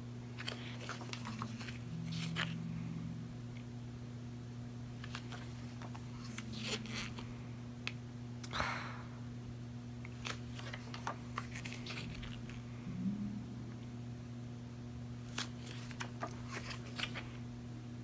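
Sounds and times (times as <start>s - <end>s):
book pages rustling and turning: 0.4s - 2.6s, 10.1s - 12.4s, 15.3s - 17.3s
low hum: 1.1s - 5.0s, 11.8s - 15.2s.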